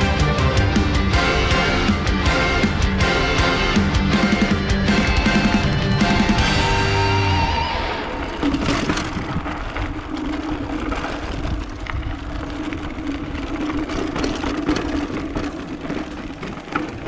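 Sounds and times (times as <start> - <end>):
steady buzzing drone: 0.0 - 8.8
tyres crunching over stones: 8.0 - 17.0
bike rattling and knocking: 8.2 - 17.0
wind rumble on microphone: 8.3 - 15.0.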